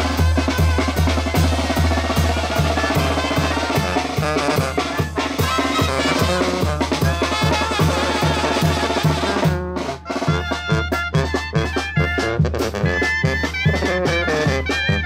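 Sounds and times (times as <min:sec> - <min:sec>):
bass drum with cymbal beat: 0:00.0 - 0:15.0
brass and clarinet melody: 0:00.0 - 0:15.0
snare drum: 0:00.0 - 0:15.0.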